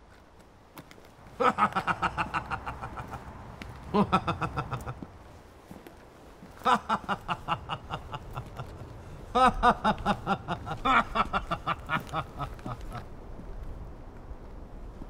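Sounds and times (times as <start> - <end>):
man laughing heartily: 1.4 - 5.2, 6.6 - 13.1.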